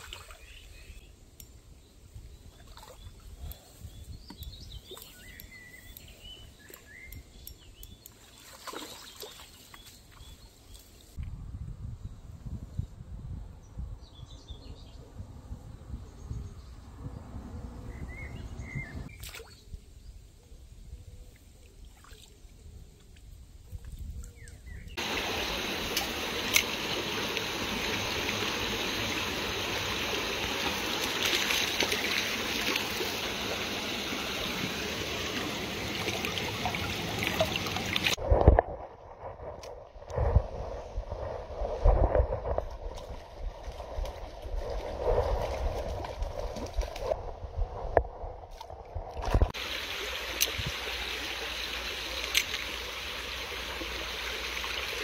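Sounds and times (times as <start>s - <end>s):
stream running over stones: 0.0s - 0.8s, 25.0s - 40.4s, 41.0s - 55.0s
low rumble: 38.1s - 49.6s.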